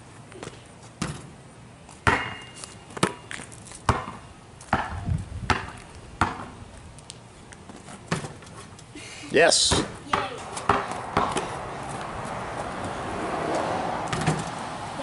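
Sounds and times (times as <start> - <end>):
basketball bouncing on concrete: 0.4 - 1.3, 2.0 - 6.6, 8.1 - 8.4, 9.6 - 14.5.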